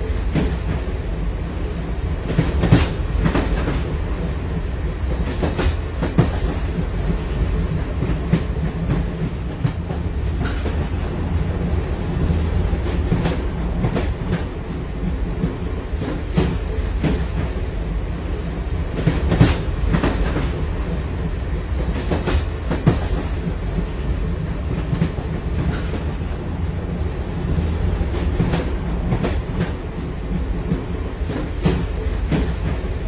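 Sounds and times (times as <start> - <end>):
train low rumble: 0.0 - 33.0
wheels clacking over rails: 2.2 - 4.0, 18.8 - 32.9.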